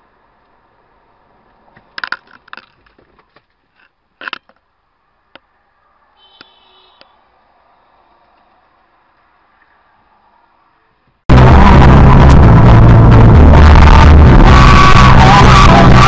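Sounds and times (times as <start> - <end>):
steady tone: 11.3 - 16.0.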